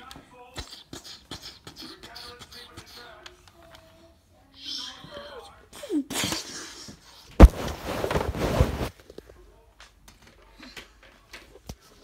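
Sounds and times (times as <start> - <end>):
sharp thump: 7.4 - 8.4
phone rustling on bedding: 7.4 - 9.0.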